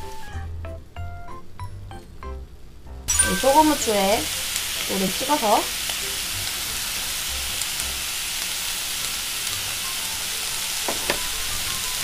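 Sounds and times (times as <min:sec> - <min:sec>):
beef sizzling on grill pan: 0:03.1 - 0:12.0.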